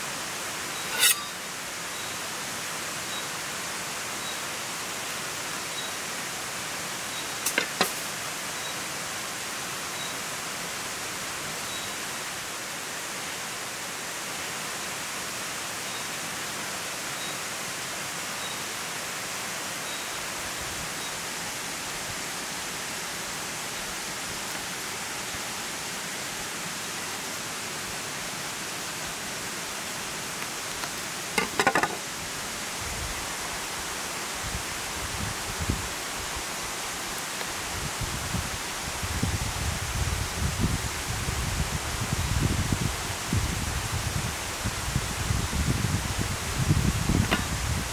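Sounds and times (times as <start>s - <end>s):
flowing water rushing: 0.0s - 39.6s, 42.8s - 47.9s
knife cutting vegetable: 0.9s - 1.4s.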